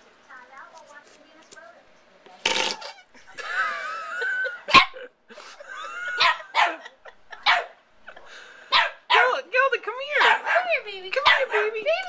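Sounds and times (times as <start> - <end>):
whoopee cushion fart noises: 2.4 - 3.1
small dog barking: 4.7 - 5.0, 6.2 - 7.8, 8.7 - 9.4, 10.1 - 12.0.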